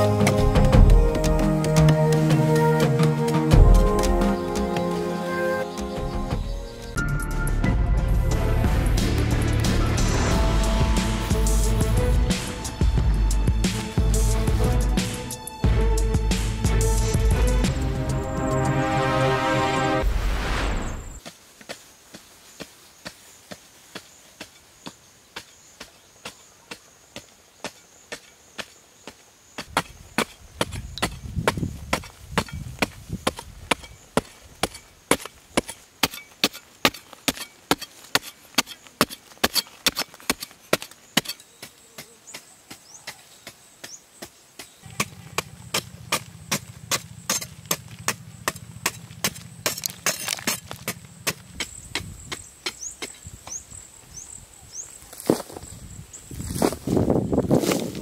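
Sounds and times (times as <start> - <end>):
low rumble: 6.3 - 15.0
digging tool chopping hard earth: 25.3 - 53.6.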